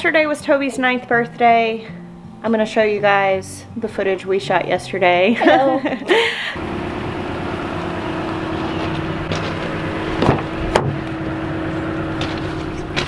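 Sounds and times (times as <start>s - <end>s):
engine running with low hum: 5.4s - 13.0s.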